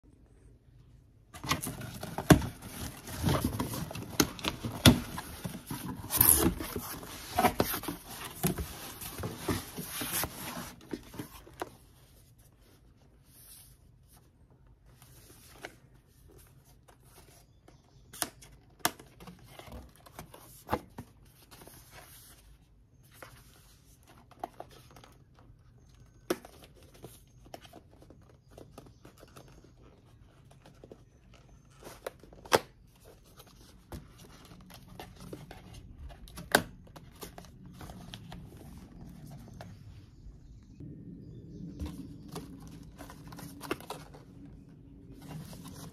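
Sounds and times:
cardboard flaps rustling: 1.3 - 13.6.

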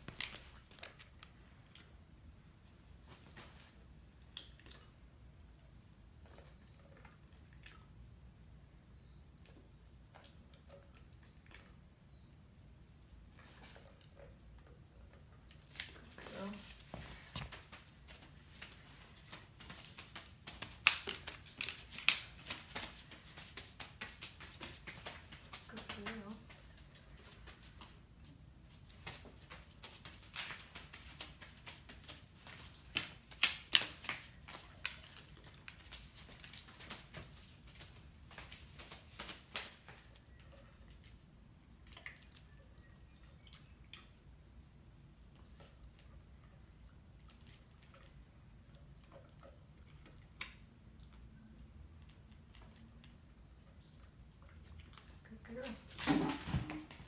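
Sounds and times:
dog's feet clicking on floor: 13.4 - 41.2.

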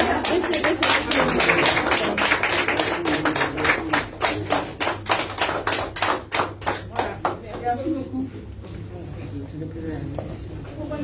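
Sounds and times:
small audience applauding: 0.0 - 7.8.

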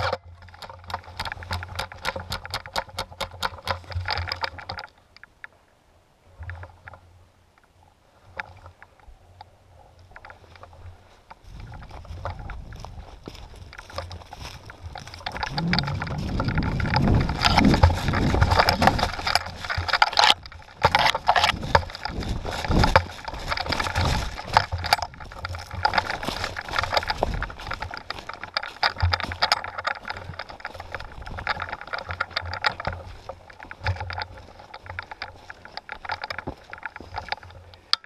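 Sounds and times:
camera knocking and rattling: 0.0 - 5.0, 10.2 - 38.0
branches brushing past: 10.6 - 37.6
footsteps crunching leaves: 10.7 - 37.6
low rumble of jostled mic: 11.4 - 35.2.

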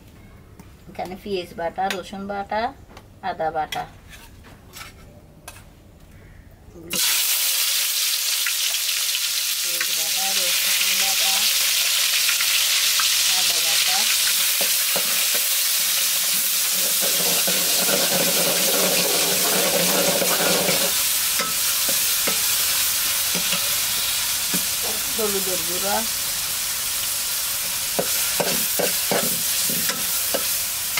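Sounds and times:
metal spatula scraping pot: 3.7 - 5.6, 16.3 - 22.6, 28.0 - 30.6
paste sizzling in hot oil: 7.0 - 30.9.

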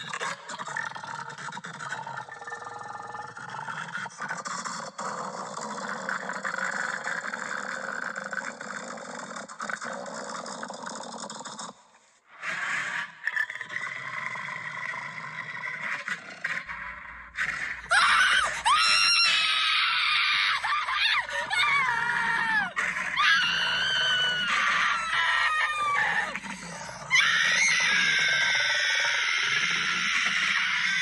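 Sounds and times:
high-pitched screaming: 17.8 - 31.0.

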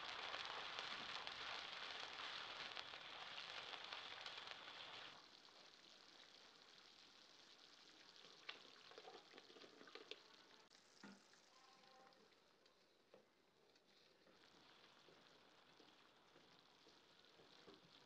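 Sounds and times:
soup bubbling in pan: 0.0 - 18.0.

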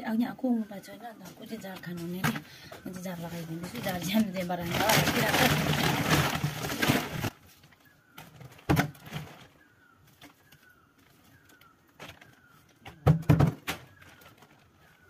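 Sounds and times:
hands working soil into plastic pot: 1.4 - 13.0.

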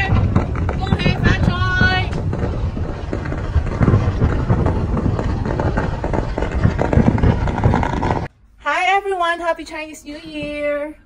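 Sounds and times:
distant fireworks booms and crackles: 0.0 - 8.3.

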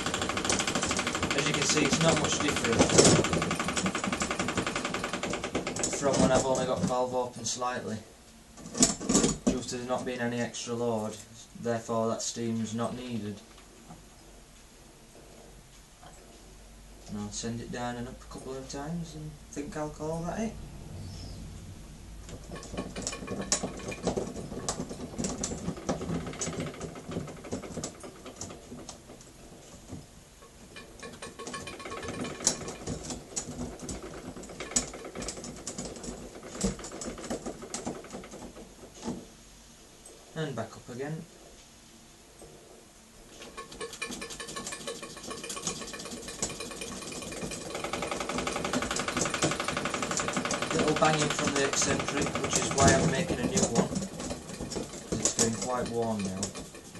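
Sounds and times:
model steam engine running fast: 0.0 - 5.3, 48.0 - 54.0
model steam engine clattering: 0.0 - 7.1, 22.3 - 29.2, 30.4 - 39.2, 43.4 - 56.9
rapid even knocking: 0.0 - 7.1, 22.2 - 39.2, 43.4 - 56.9.

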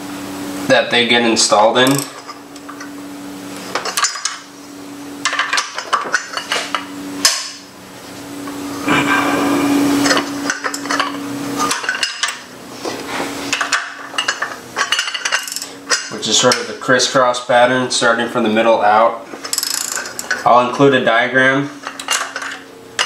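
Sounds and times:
ratchet clicking: 1.8 - 2.2, 15.2 - 16.1, 19.5 - 20.4.

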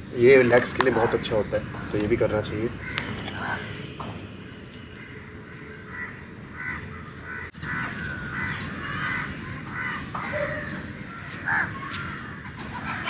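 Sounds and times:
crows cawing: 2.5 - 3.8, 4.9 - 13.0.

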